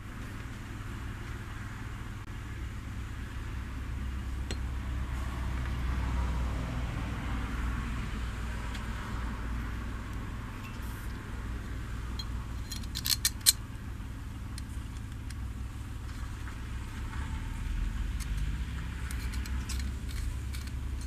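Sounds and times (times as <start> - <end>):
steady low hum: 0.0 - 21.0
small steel parts clinking: 12.2 - 13.6, 18.2 - 21.0.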